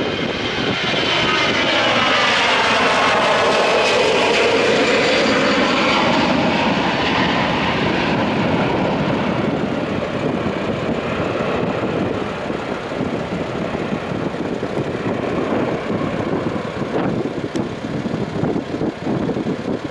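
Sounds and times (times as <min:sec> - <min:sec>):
jet engines roaring at takeoff: 0:00.0 - 0:19.9.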